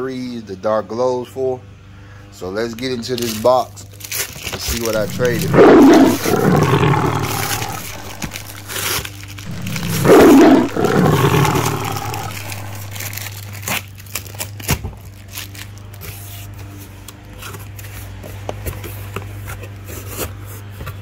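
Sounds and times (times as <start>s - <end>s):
envelope crumpling and tearing: 3.2s - 5.5s, 6.6s - 10.0s, 11.0s - 16.2s.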